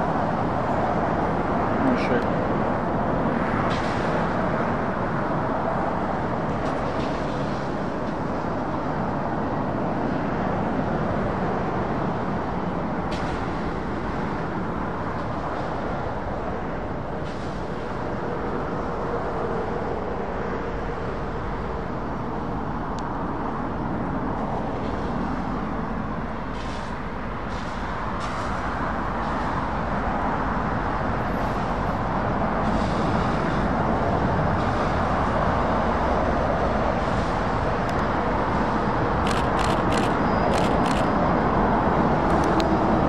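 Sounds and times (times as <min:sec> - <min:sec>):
vehicle noise: 0:00.0 - 0:43.0.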